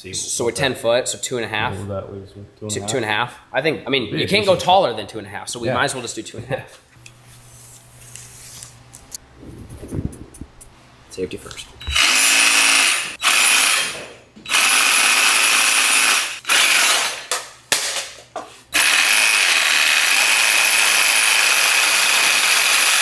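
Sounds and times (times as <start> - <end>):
reciprocating saw cutting metal: 11.8 - 17.3, 18.8 - 23.0.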